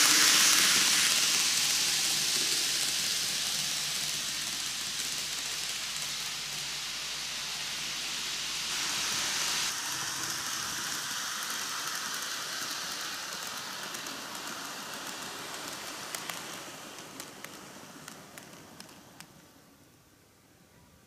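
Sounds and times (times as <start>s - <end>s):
model train wheels and motor hiss: 0.0s - 20.8s
wheels clicking over rail joints: 9.9s - 19.4s.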